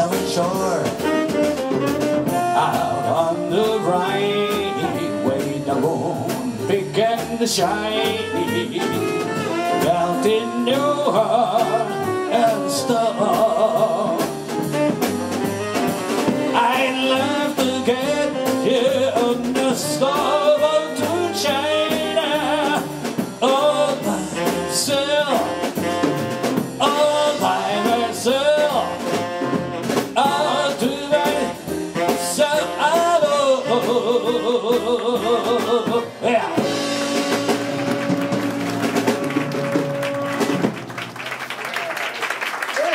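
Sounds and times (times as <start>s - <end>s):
man singing: 0.0s - 1.4s, 2.2s - 14.7s, 16.4s - 26.0s, 26.6s - 37.5s
jazz big band playing: 0.0s - 42.9s
applause: 37.7s - 42.9s.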